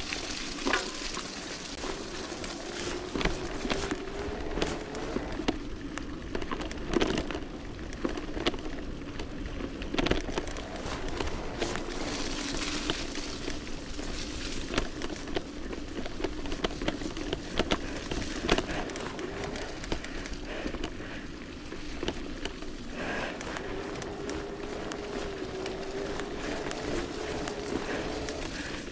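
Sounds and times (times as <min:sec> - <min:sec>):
tyres hissing in mud: 0:00.0 - 0:05.4, 0:10.6 - 0:15.4, 0:16.8 - 0:28.9
bike knocking and rattling: 0:00.0 - 0:28.9
electric bike motor whining: 0:01.8 - 0:28.9.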